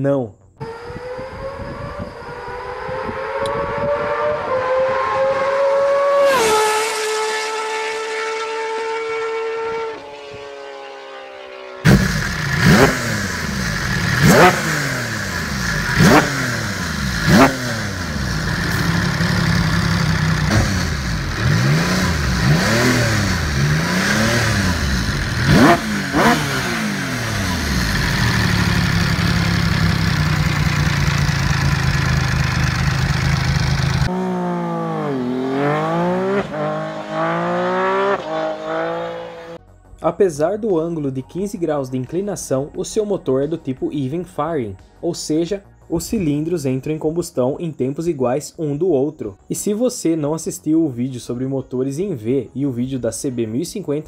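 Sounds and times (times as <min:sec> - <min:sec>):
motorcycle accelerating past: 0:00.6 - 0:39.6
motorcycle engine revving: 0:00.6 - 0:39.6.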